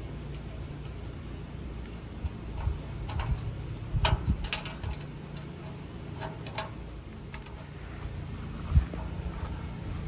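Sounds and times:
metal clicks and knocks: 2.6 - 7.7.

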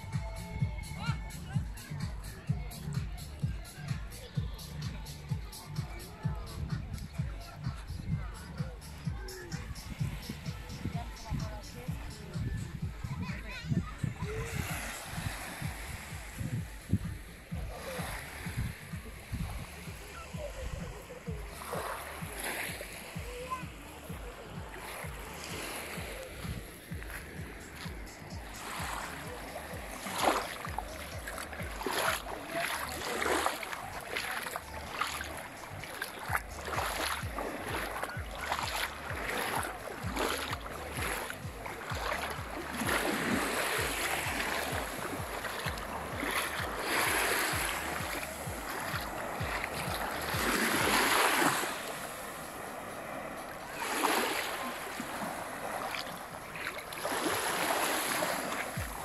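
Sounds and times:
small waves lapping on sand: 0.0 - 59.0
wind rumbling on microphone: 6.2 - 51.0
short ticks and splashes: 29.8 - 43.1.

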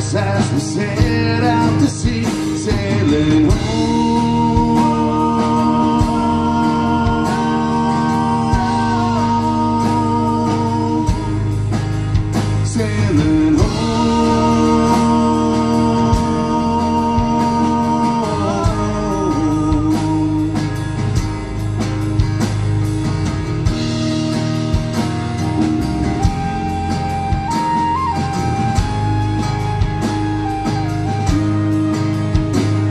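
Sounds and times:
drums: 0.0 - 32.9
electric bass: 0.0 - 32.9
strummed acoustic guitar: 0.0 - 32.9
tin whistle melody: 24.0 - 32.9.

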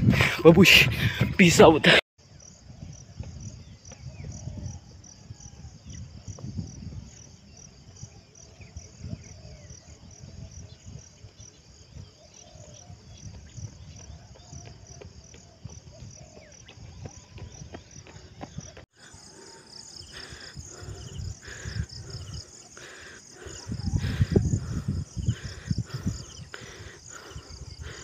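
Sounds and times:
insects chirping: 0.2 - 28.0
lower insect call in bursts: 1.4 - 28.0.

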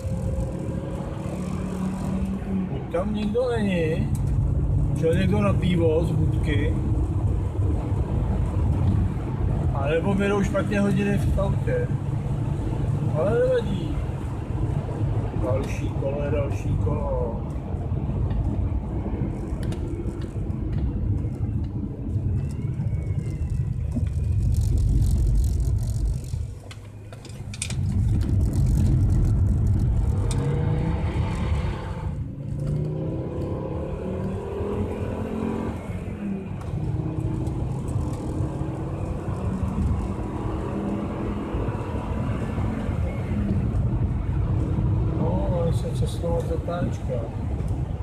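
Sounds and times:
car engine revving: 0.0 - 3.4, 27.7 - 46.9.

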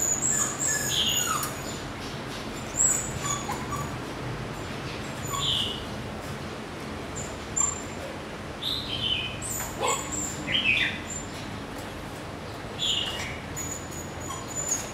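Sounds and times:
puppies whimpering: 0.0 - 1.8, 2.8 - 4.0, 13.6 - 14.9.

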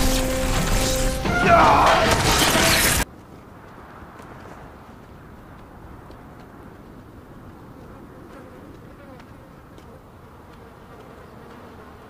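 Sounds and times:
flies buzzing: 0.0 - 1.3, 7.8 - 12.0.

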